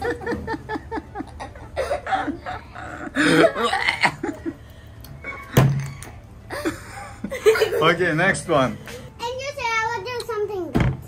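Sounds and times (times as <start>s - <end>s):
girls laughing: 0.0s - 5.9s, 6.5s - 8.1s.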